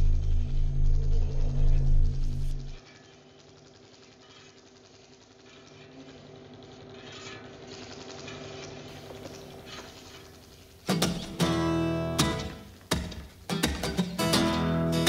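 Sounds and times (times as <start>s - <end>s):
droning tones: 0.0s - 2.8s
acoustic guitar chords strummed: 10.9s - 15.0s.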